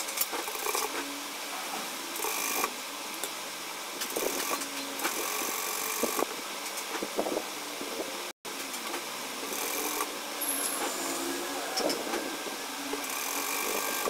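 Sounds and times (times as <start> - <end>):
sewing machine stitching: 13.0 - 14.0.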